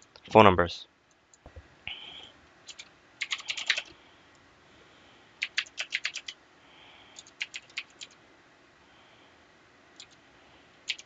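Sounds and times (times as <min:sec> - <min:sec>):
typing on computer keyboard: 0:02.7 - 0:03.9, 0:05.4 - 0:06.4, 0:07.2 - 0:08.2, 0:10.0 - 0:10.2.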